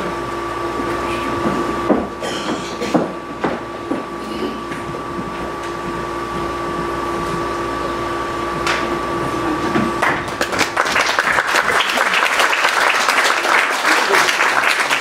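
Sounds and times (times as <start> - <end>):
steady two-tone hum: 0.0 - 15.0
audience clapping: 10.0 - 15.0.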